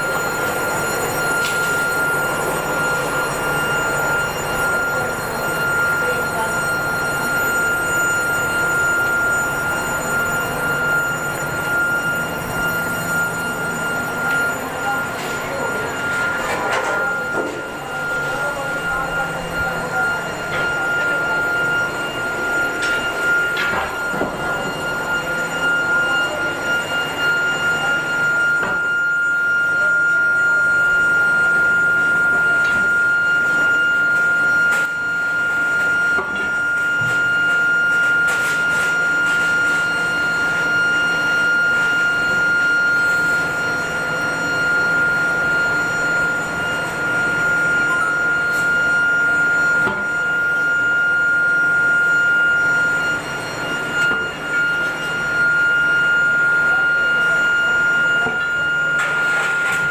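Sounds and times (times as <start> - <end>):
high-pitched whine: 0.0 - 59.9
industrial machinery din: 0.1 - 29.0.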